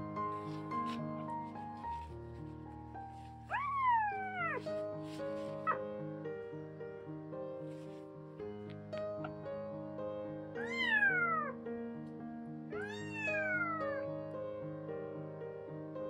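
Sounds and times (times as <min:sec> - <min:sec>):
piano music: 0:00.0 - 0:16.0
kitten meowing: 0:03.5 - 0:04.7, 0:10.6 - 0:11.6, 0:12.8 - 0:14.0.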